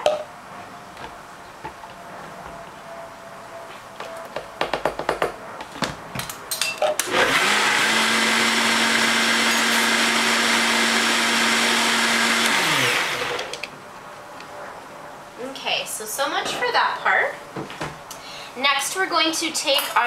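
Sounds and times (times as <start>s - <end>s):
blender running at high speed: 7.0s - 13.6s.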